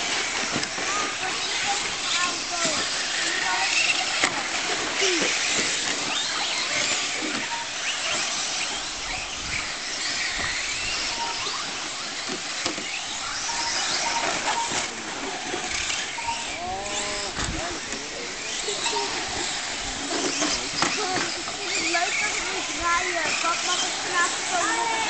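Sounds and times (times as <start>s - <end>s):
rc truck motors whining: 0.0s - 25.0s
short beeps: 11.0s - 11.7s, 13.2s - 15.0s, 15.8s - 17.8s.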